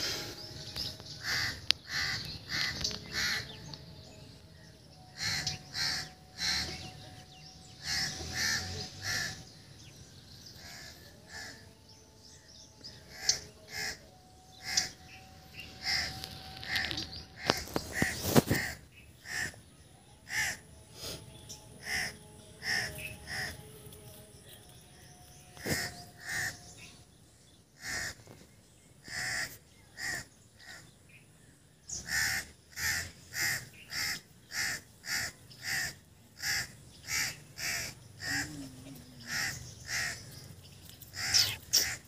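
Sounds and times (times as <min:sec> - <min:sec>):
crows cawing: 0:01.2 - 0:03.6, 0:05.2 - 0:06.9, 0:07.8 - 0:09.5, 0:10.6 - 0:11.7, 0:13.1 - 0:20.7, 0:21.8 - 0:23.6, 0:25.6 - 0:26.7, 0:27.8 - 0:28.4, 0:29.0 - 0:31.0, 0:32.0 - 0:40.4, 0:41.0 - 0:42.0.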